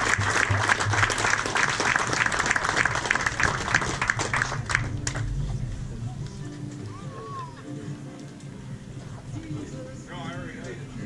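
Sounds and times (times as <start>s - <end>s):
crowd applauding: 0.0s - 5.4s.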